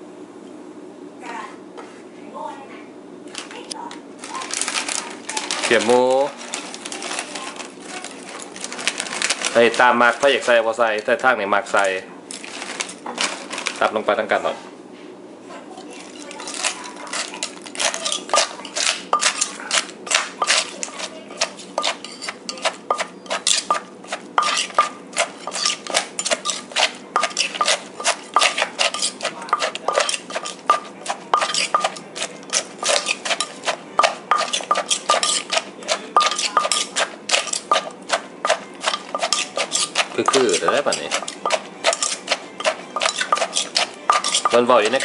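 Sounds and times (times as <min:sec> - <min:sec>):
metal spoon clinking: 0:16.1 - 0:45.0
pestle pounding in a mortar: 0:16.4 - 0:45.0.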